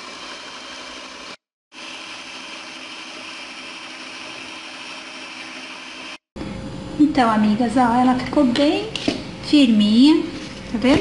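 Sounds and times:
stand mixer motor whirring: 0:00.0 - 0:06.2.

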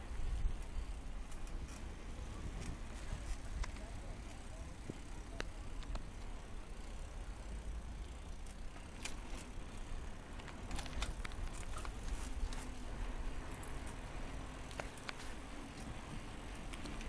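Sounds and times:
bicycle clicks and rattles: 0:00.0 - 0:17.0
wind and tyre rumble: 0:00.0 - 0:17.0.

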